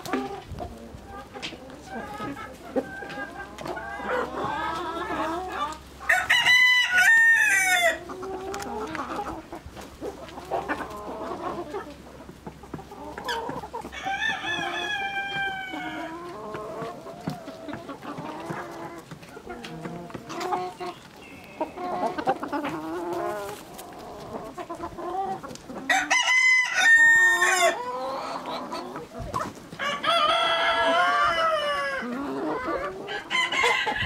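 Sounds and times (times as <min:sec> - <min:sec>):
chickens clucking: 0:00.0 - 0:34.0
rooster crowing: 0:06.1 - 0:08.0, 0:25.9 - 0:27.8, 0:29.8 - 0:32.1, 0:33.1 - 0:34.0.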